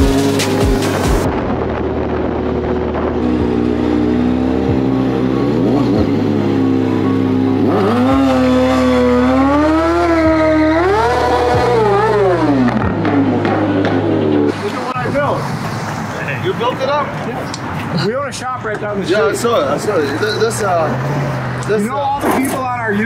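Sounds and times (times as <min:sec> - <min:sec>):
music with deep bass: 0:00.0 - 0:14.5
motorcycle engine revving: 0:00.0 - 0:15.6.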